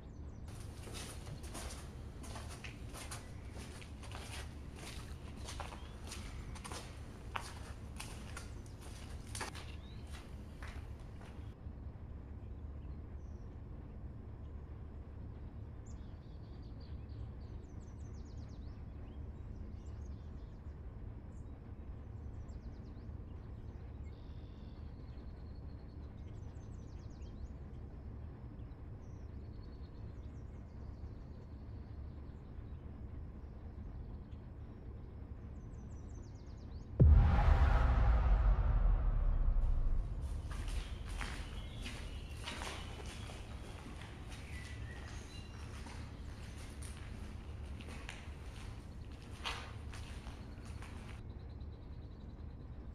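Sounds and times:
low background rumble: 30.4 - 52.8.

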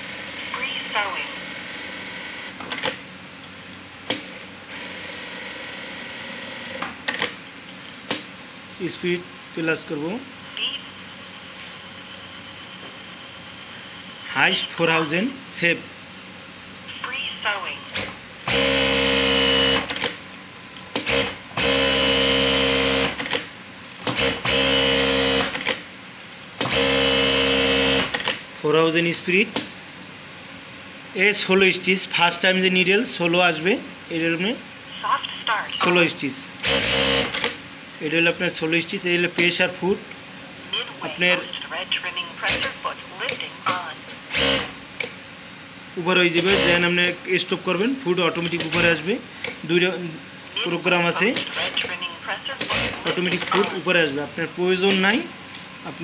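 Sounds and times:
sewing machine humming: 18.0 - 20.1, 21.0 - 23.4, 24.1 - 25.7, 26.6 - 28.2, 36.6 - 37.5, 44.3 - 44.8, 52.6 - 53.6.

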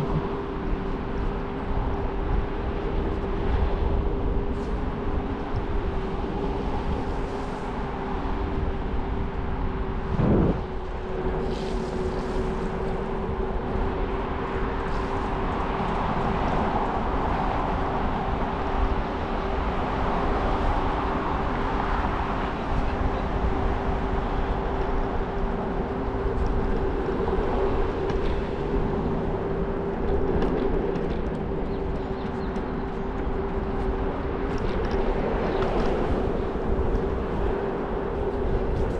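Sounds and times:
rolling road noise: 0.0 - 38.9
steady scooter whine: 0.0 - 38.9
wind rumbling on microphone: 0.0 - 38.9.

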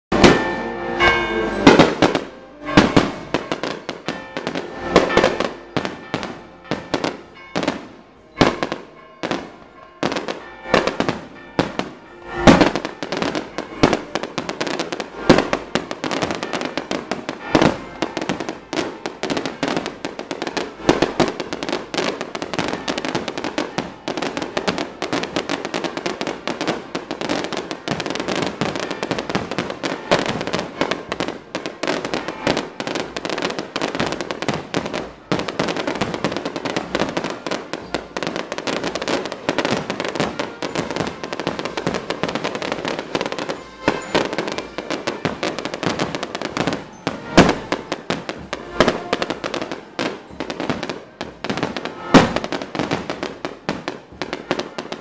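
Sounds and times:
short musical chord: 0.1 - 5.8
firecrackers banging: 0.1 - 55.0.

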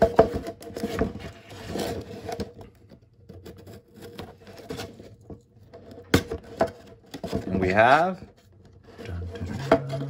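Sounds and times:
knife scraping cardboard: 0.2 - 2.6, 3.3 - 7.4.

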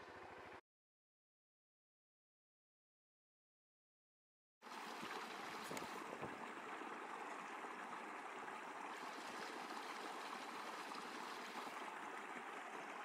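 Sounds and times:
creek flowing water: 0.0 - 0.6, 4.6 - 13.0.

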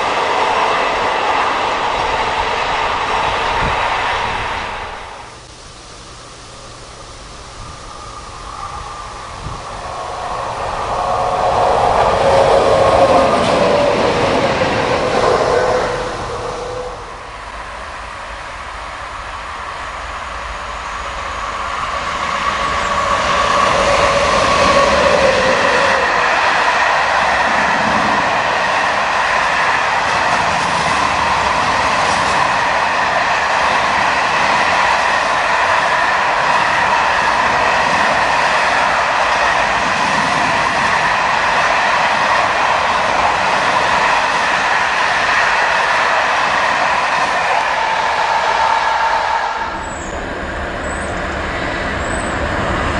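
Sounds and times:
freight train passing: 0.0 - 52.9
wheels rolling on rails: 0.0 - 52.9
faint high ringing tones: 5.3 - 13.8.

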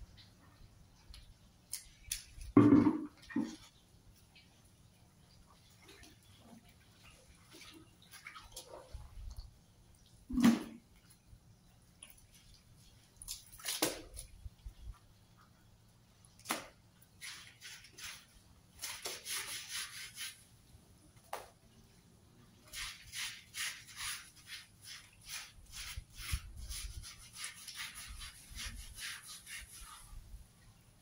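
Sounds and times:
scrub brush scrubbing wet mat: 5.5 - 9.2, 12.0 - 14.4, 16.4 - 20.5, 22.7 - 30.3.

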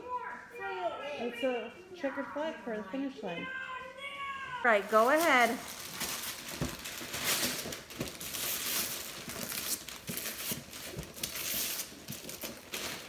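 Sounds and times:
wrapping paper ripping and rustling: 4.7 - 13.0.

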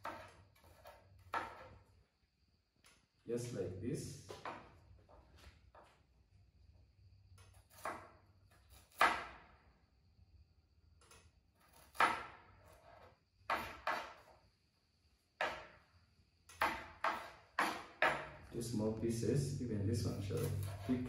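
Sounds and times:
knife chopping on cutting board: 7.7 - 8.1, 8.9 - 9.4, 11.7 - 12.4, 13.5 - 14.2, 15.4 - 15.8, 16.5 - 18.4, 20.4 - 21.0.

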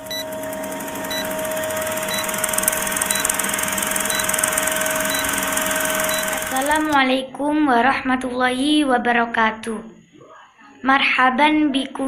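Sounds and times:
film projector clattering: 0.0 - 7.0
steady tone: 0.0 - 7.0
short high beeps: 0.1 - 0.3, 1.1 - 6.9.

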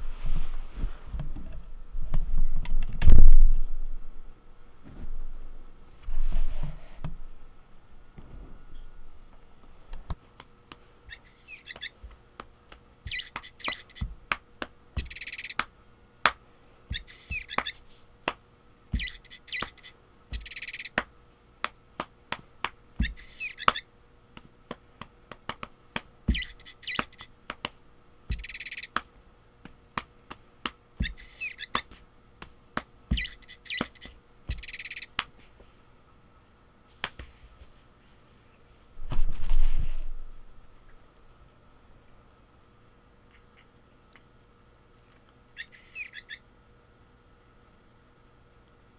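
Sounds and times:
toy bird chirping: 11.1 - 12.0, 13.1 - 14.1, 15.0 - 15.6, 16.9 - 17.8, 19.0 - 21.0, 23.0 - 23.9, 26.3 - 27.3, 28.3 - 29.0, 31.0 - 31.8, 33.1 - 35.1, 45.6 - 46.4
sharp clicks: 26.3 - 27.3.

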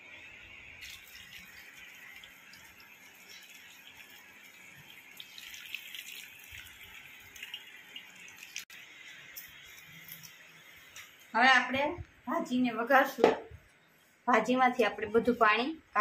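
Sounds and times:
water splashing as it drains: 0.8 - 8.8
water poured into colander: 0.8 - 10.5.

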